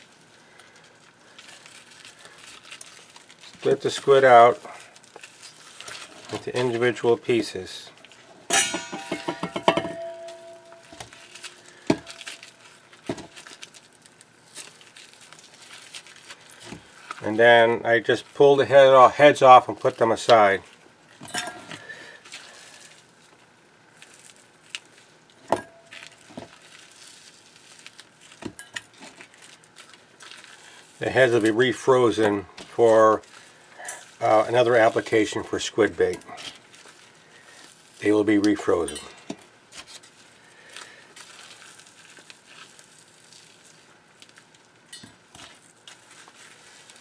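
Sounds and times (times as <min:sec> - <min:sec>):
small crackles and soft clicks: 0:00.0 - 0:03.8, 0:22.2 - 0:31.5, 0:39.8 - 0:47.0
gloved hands handling squid: 0:00.0 - 0:06.6, 0:10.5 - 0:17.2, 0:21.7 - 0:38.1, 0:39.4 - 0:47.0.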